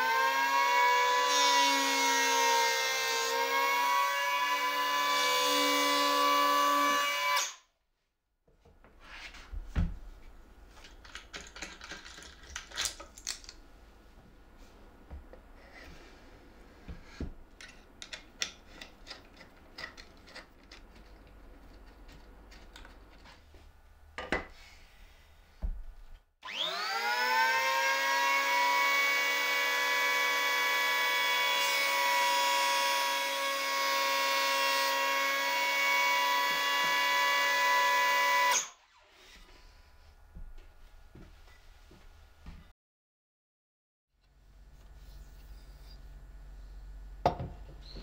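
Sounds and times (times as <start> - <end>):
electric planer motor whine: 26.4 - 38.6.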